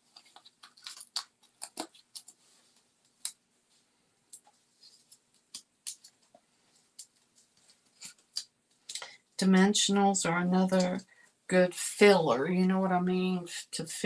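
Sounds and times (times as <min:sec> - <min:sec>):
paper clicks and crackles: 0:00.0 - 0:02.4.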